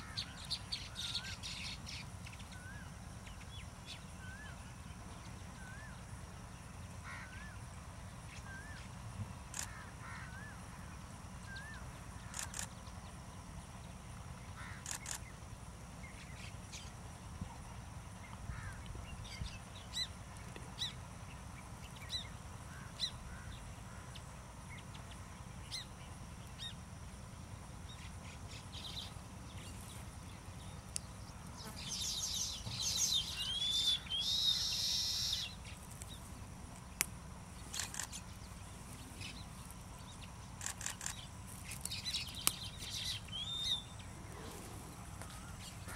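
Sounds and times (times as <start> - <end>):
buzzy chattering birdsong: 0.0 - 45.9
birds chirping: 27.9 - 45.9.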